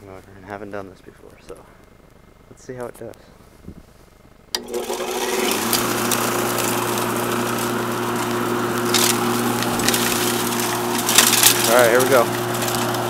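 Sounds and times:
electric motor humming: 0:04.5 - 0:13.0.

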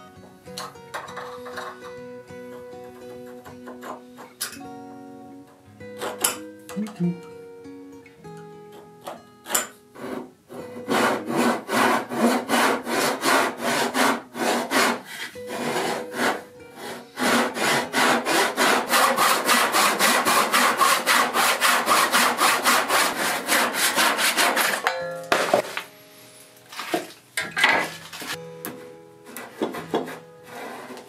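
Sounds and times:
back saw rasping through wood: 0:03.0 - 0:04.3, 0:09.5 - 0:24.8, 0:29.3 - 0:31.0.

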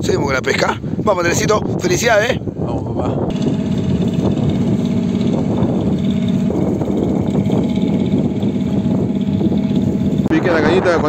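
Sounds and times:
wind buffeting microphone: 0:00.0 - 0:11.0
boat engine humming: 0:03.2 - 0:11.0.

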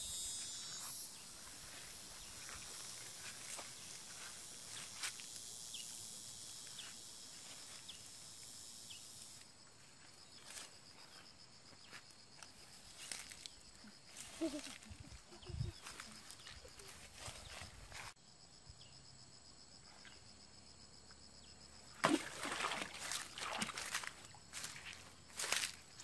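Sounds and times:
insect chorus: 0:00.0 - 0:26.0
footsteps through grass and leaves: 0:00.4 - 0:05.5, 0:06.6 - 0:08.0, 0:09.8 - 0:18.2, 0:22.0 - 0:26.0.

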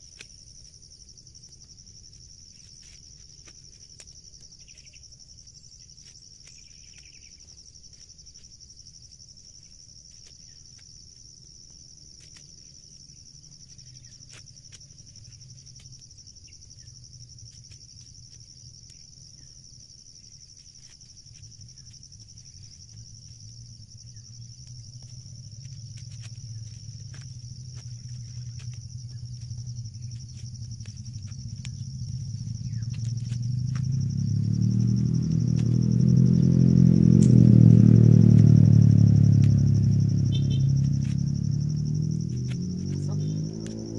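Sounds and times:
insects buzzing: 0:00.0 - 0:43.9
corn husks being stripped: 0:01.5 - 0:19.2, 0:20.4 - 0:34.0, 0:37.1 - 0:38.6
low rumble: 0:22.8 - 0:43.9.

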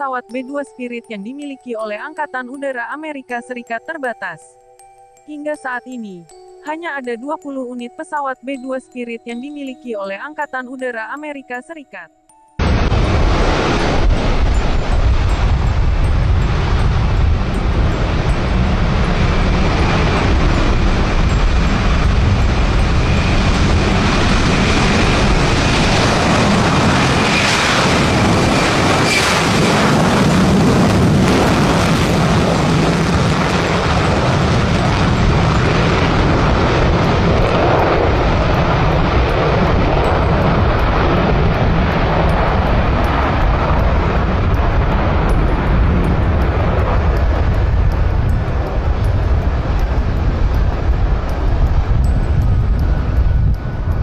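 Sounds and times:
jet engines at takeoff power: 0:12.6 - 0:54.0.

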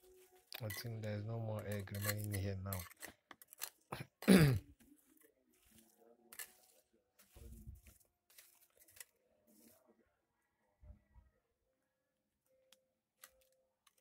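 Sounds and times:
plastic spoon scraping soil: 0:00.0 - 0:09.8.

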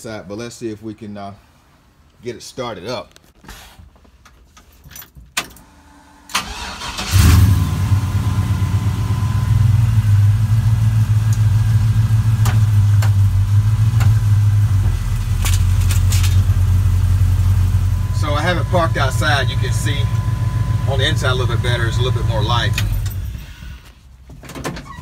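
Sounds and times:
starter cranking engine: 0:06.3 - 0:07.7
engine idling: 0:06.3 - 0:23.8.

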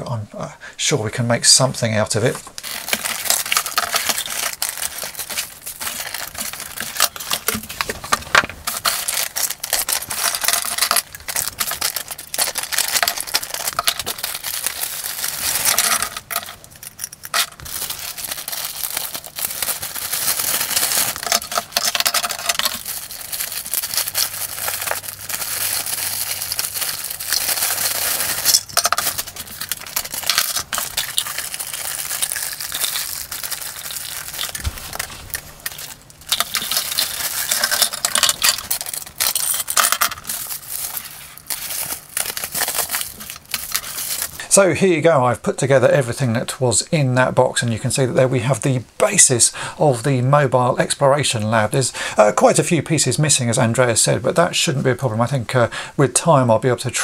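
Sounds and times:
plastic bags crinkling: 0:02.2 - 0:44.4.

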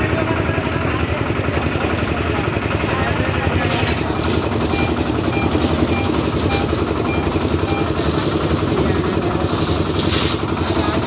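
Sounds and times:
concrete mixer running: 0:00.0 - 0:11.0.

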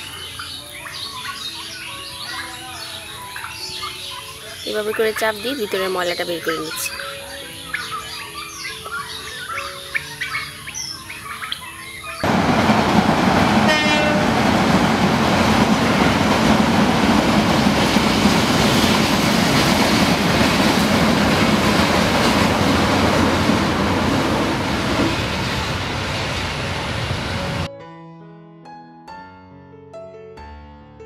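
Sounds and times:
passing passenger train: 0:00.0 - 0:27.7
carriages clattering on rails: 0:04.6 - 0:10.9, 0:12.0 - 0:27.7.

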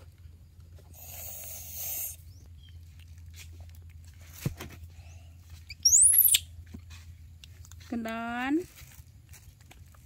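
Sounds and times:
high-pitched squeak: 0:05.7 - 0:06.5.

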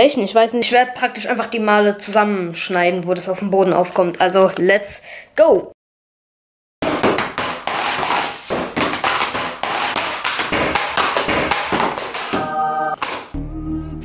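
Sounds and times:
plastic tablet clacking on tile: 0:07.0 - 0:12.4.

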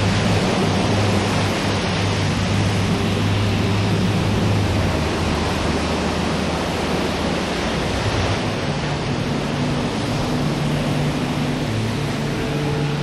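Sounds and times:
waves breaking: 0:00.0 - 0:13.0.

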